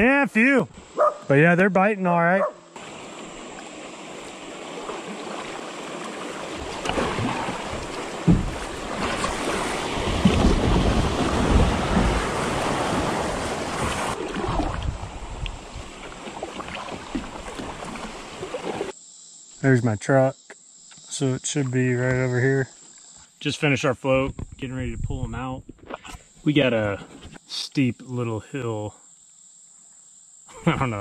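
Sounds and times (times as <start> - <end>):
water rushing and splashing: 2.8 - 18.9
wind buffeting microphone: 6.6 - 18.3, 24.2 - 25.8.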